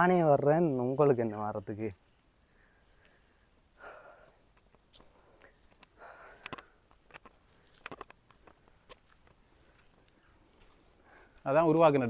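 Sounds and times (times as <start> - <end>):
small sharp clicks: 4.5 - 9.4
footsteps scuffing on gritty path: 7.3 - 12.0.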